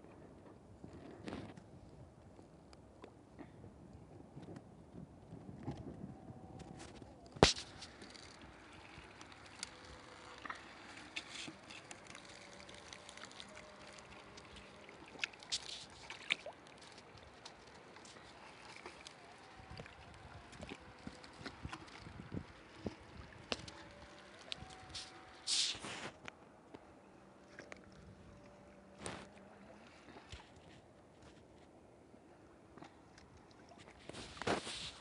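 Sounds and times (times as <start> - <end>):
river water lapping: 6.8 - 31.3.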